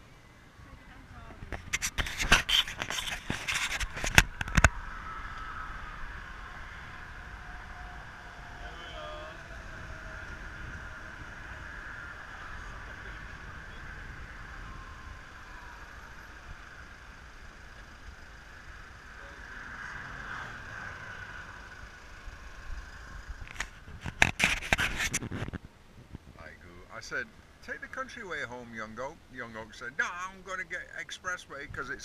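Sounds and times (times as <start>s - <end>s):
car road and wind noise: 0.0s - 32.0s
camera being handled: 1.5s - 4.7s, 23.5s - 25.6s.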